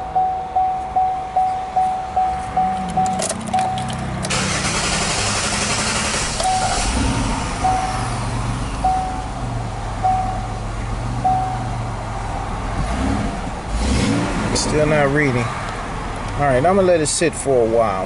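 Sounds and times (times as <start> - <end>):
dashboard warning chime: 0.0 - 4.0, 6.4 - 7.0, 7.6 - 8.1, 8.8 - 9.4, 10.0 - 10.6, 11.2 - 11.8
car engine idling: 0.0 - 12.7
engine starter cranking: 3.0 - 7.5.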